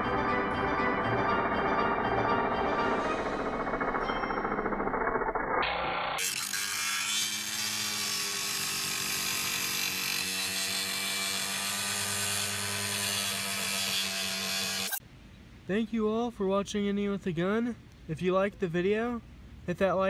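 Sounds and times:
angle grinder grinding metal: 0:01.3 - 0:15.0.

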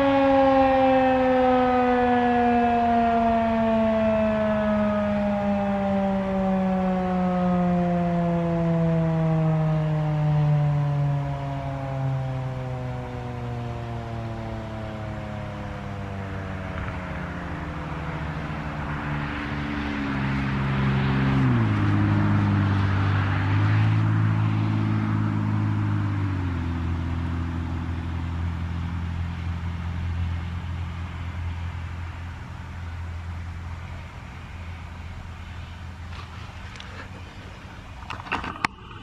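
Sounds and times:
rotating siren winding down: 0:00.0 - 0:29.0.

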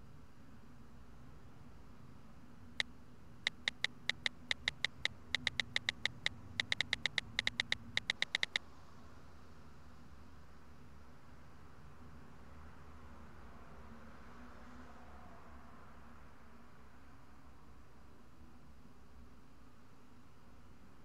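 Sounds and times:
phone keypad clicks: 0:03.5 - 0:08.6.

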